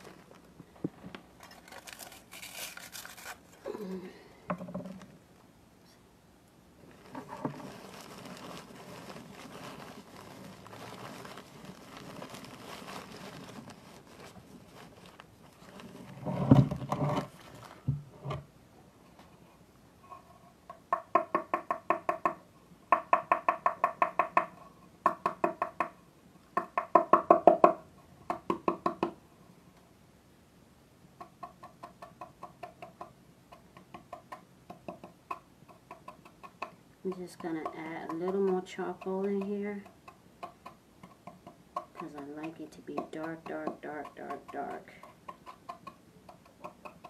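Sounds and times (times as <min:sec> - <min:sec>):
gritty scraping of salt grains: 0:01.4 - 0:03.6, 0:06.9 - 0:17.6.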